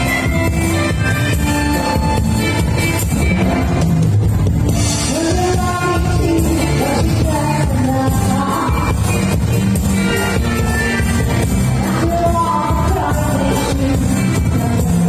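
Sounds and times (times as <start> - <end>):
disco dance music: 0.0 - 15.0
person singing: 5.0 - 15.0.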